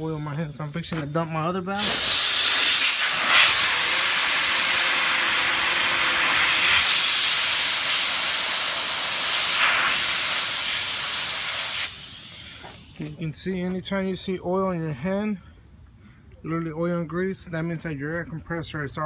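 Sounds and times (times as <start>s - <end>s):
compressed air hissing: 1.8s - 13.3s.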